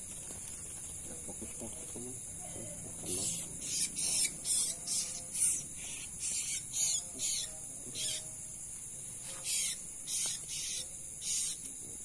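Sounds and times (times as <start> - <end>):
night insects chirring: 0.0 - 12.0
bird harsh rasping calls: 2.9 - 8.3, 9.4 - 11.7.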